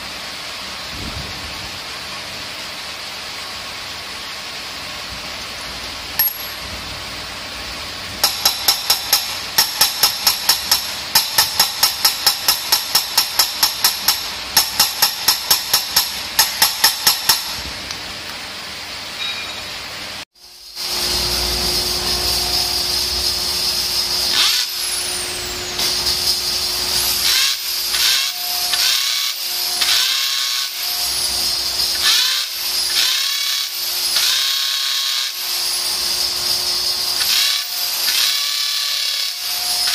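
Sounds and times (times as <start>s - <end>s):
electric drill whining: 20.9s - 39.9s.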